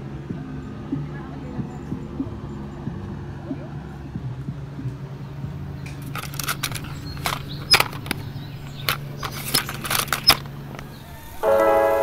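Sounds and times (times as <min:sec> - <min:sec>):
sharp irregular clicks and knocks: 0:01.9 - 0:11.0.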